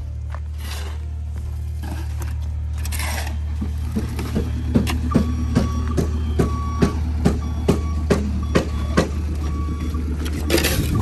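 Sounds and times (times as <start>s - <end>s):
shovel scraping concrete: 0.3s - 5.1s, 10.2s - 11.0s.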